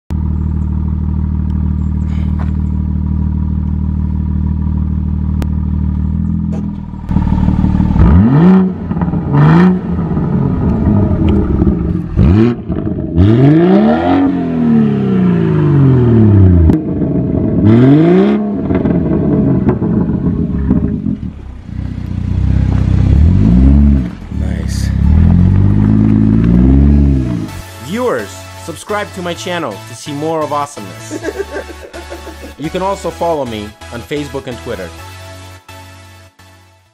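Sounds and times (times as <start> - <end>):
car engine revving: 0.2 - 27.7
exhaust crackles: 0.2 - 27.7.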